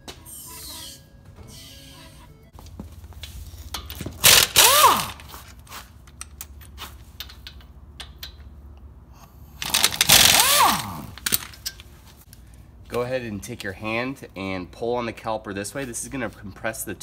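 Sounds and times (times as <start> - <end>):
air impact wrench hammering: 3.6 - 8.5, 9.6 - 11.8.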